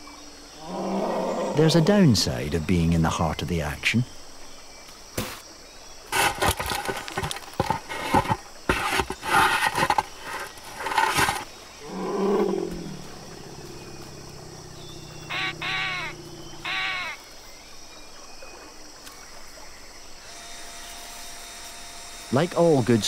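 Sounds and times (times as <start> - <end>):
elephant crashing through undergrowth: 6.1 - 11.6
low elephant call: 11.8 - 17.2
short falling call: 15.0 - 17.2.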